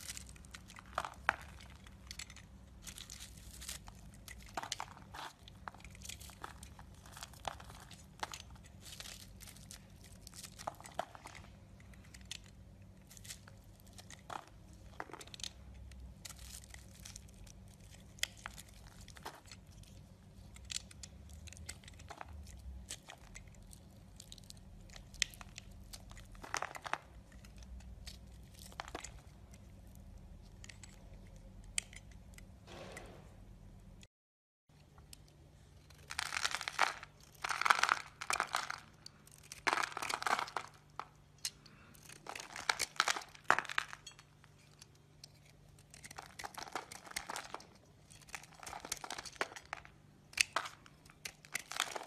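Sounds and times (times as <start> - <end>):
soap crunching and cracking: 0.0 - 32.5, 35.8 - 52.0
knife scraping soap: 39.2 - 40.8, 44.0 - 52.0.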